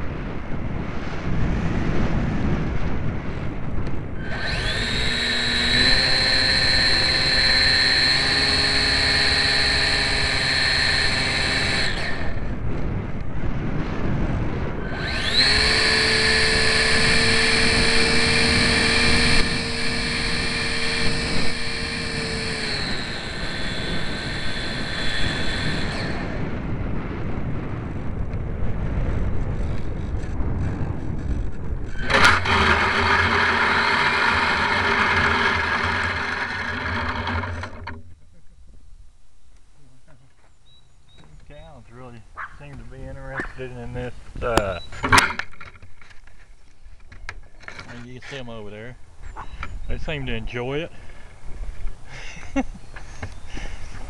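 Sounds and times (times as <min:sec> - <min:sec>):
electric motor and propeller whine: 0:00.0 - 0:38.4, 0:43.0 - 0:54.0
airflow rushing over microphone: 0:00.0 - 0:39.1.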